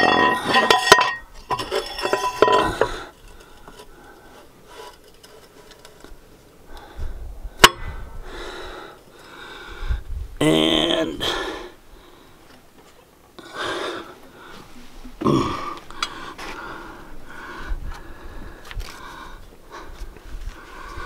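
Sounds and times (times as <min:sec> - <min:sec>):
metal liner clinking and ringing: 0:00.0 - 0:02.9.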